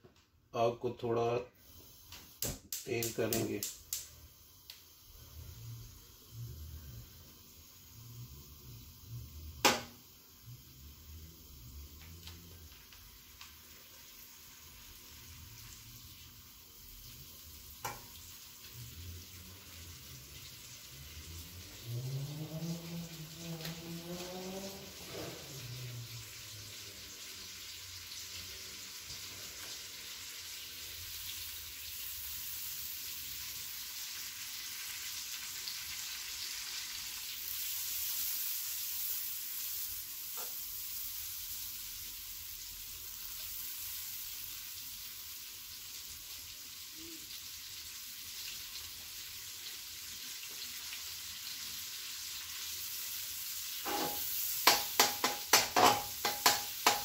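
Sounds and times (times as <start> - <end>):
ghee sizzling: 1.5 - 57.0
metal spoon stirring: 53.9 - 57.0
spoon clicking against pan: 54.6 - 57.0.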